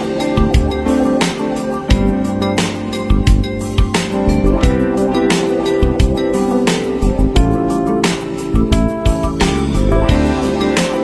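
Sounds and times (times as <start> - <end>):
instrumental music with plucked notes: 0.0 - 11.0.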